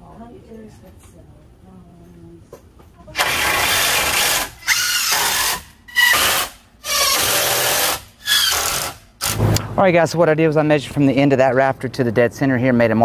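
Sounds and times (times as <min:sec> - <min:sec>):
cordless power driver driving screws: 0:03.2 - 0:09.4.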